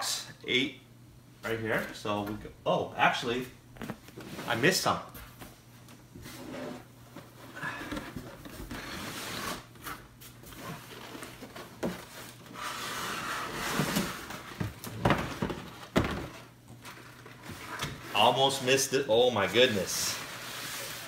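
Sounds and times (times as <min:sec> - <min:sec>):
cardboard rustling and scraping: 0:06.2 - 0:18.2.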